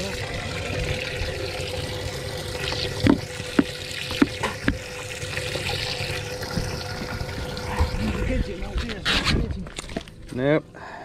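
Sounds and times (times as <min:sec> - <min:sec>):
sharp knocks and splashes: 0:02.8 - 0:04.9.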